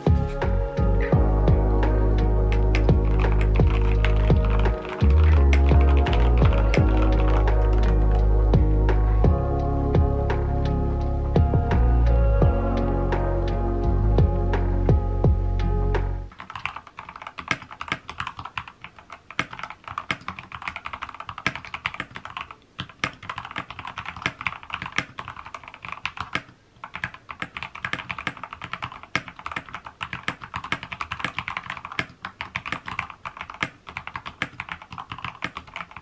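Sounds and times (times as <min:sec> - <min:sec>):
fast typing on mechanical keyboard: 0:02.5 - 0:08.2, 0:16.3 - 0:36.0.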